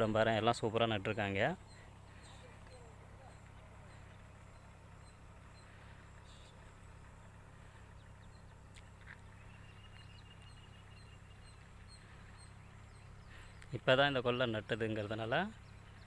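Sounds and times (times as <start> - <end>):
faint high chirps: 0.2 - 14.0.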